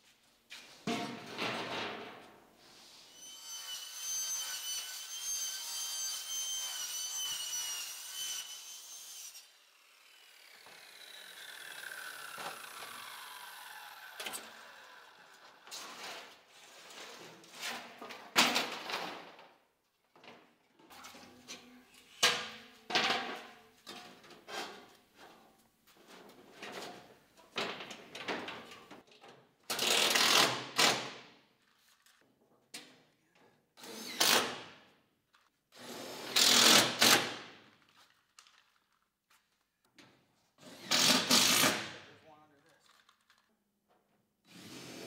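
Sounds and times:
power saw whine: 9.4 - 15.7.

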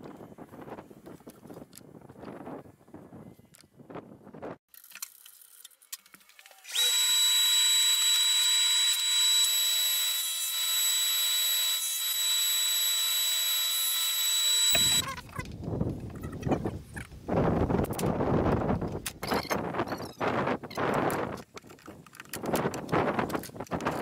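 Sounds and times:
table saw whining: 6.5 - 15.1.

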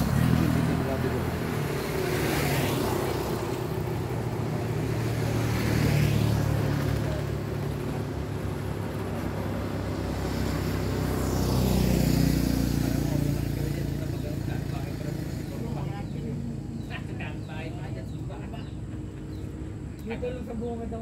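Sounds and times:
low engine hum: 0.0 - 21.0
vehicles passing: 0.0 - 21.0.

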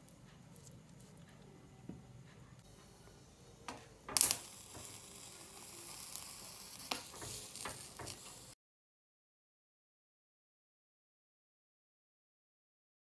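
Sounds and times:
corn sizzling on grill: 2.6 - 8.6.

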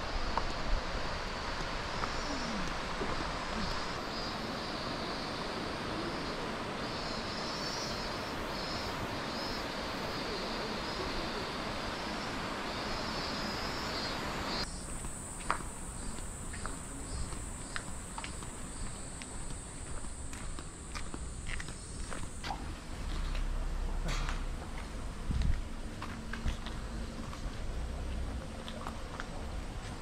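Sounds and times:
insects calling in pulses: 0.0 - 24.5
high steady insect drone: 0.0 - 30.0
footsteps clicking: 15.0 - 23.5, 24.2 - 30.0.

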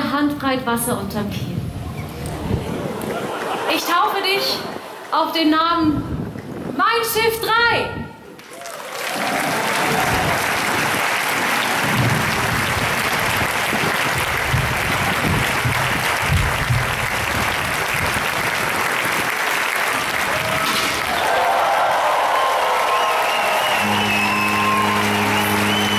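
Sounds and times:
large crowd applauding: 8.3 - 25.9.

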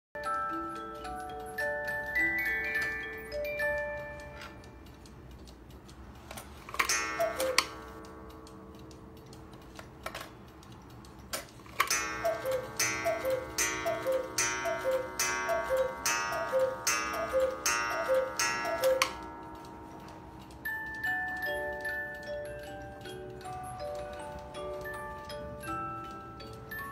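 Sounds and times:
clock ticking: 0.2 - 26.9
music box tune: 0.2 - 26.9
clock ringing strike: 6.8 - 9.2, 11.8 - 22.4
two-note cuckoo call: 7.1 - 7.9, 12.2 - 19.3.

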